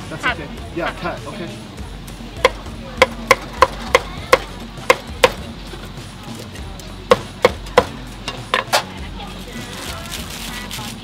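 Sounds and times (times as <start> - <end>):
meat cleaver chopping on wood: 2.4 - 5.4, 7.1 - 8.0.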